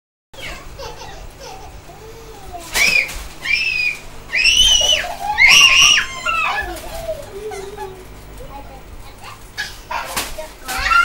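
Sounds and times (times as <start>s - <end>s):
young children shrieking: 2.7s - 8.0s, 10.7s - 11.0s.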